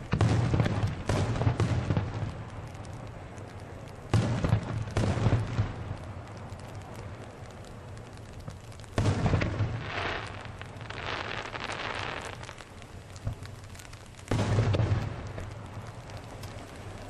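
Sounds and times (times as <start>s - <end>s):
firework shells booming: 0.0s - 7.4s, 8.4s - 17.0s
firework crackling: 0.0s - 17.0s.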